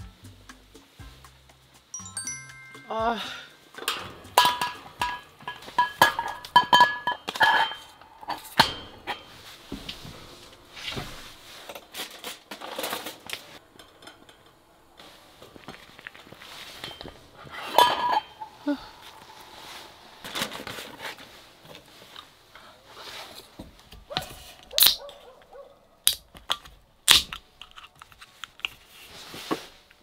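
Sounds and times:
pot lid clinking and knocking: 3.8s - 9.2s.

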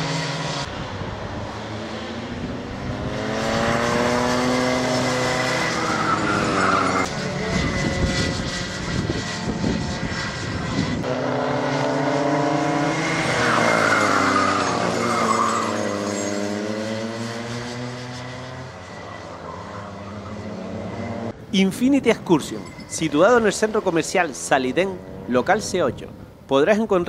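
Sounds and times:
race car engine revving: 0.0s - 21.4s.

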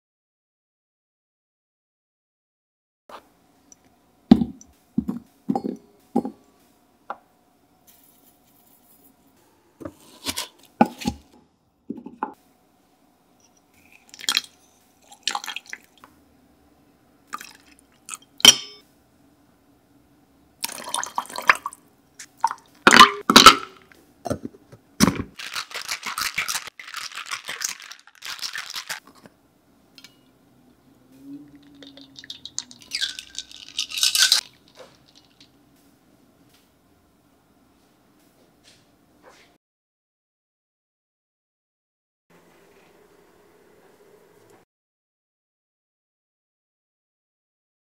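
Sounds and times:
liquid pouring: 20.6s - 21.8s, 31.6s - 34.6s
ice rattling in shaker: 25.4s - 29.2s, 31.6s - 35.5s.

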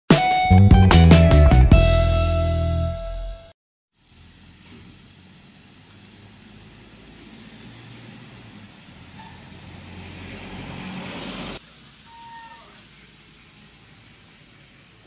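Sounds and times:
distant road traffic hum: 4.0s - 15.0s.

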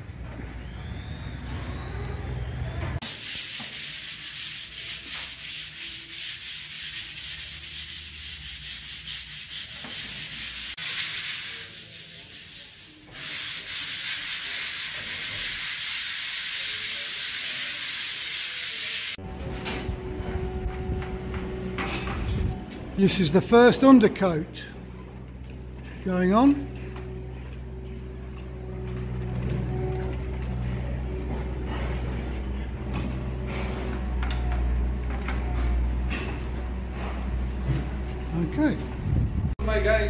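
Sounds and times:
abrasive rubbing on a surface: 3.0s - 19.2s.

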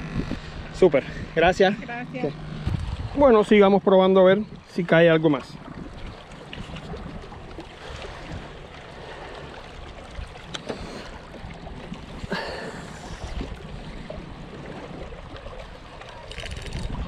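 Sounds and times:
steady low rumble: 0.0s - 4.9s
water lapping on rocky shore: 0.0s - 17.0s.

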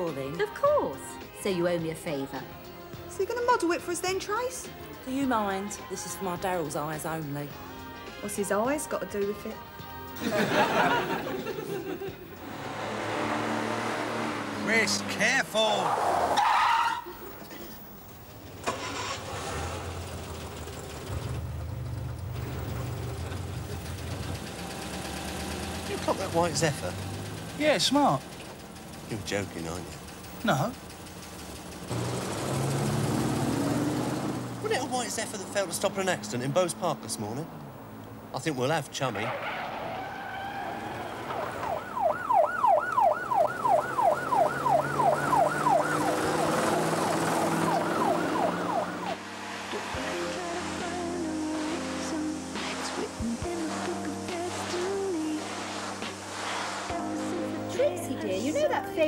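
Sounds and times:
car engine pulling away: 10.2s - 59.0s
police siren yelping: 15.9s - 17.4s, 39.7s - 49.2s
car engine idling: 17.1s - 39.0s.

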